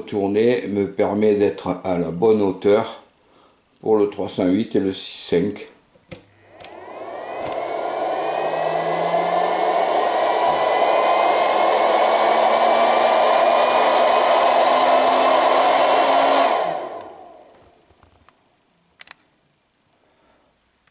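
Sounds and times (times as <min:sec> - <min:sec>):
heater fan whir with whine: 0:06.1 - 0:18.3.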